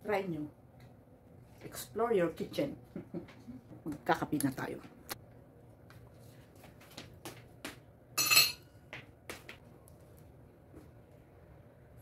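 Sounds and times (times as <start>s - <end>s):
ringing clink of crockery: 8.2s - 8.6s.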